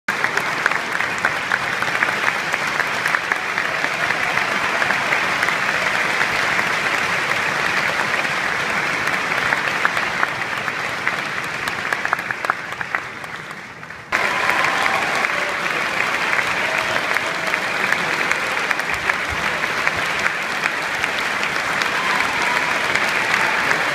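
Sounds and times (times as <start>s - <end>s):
audience applauding: 0.1s - 23.9s.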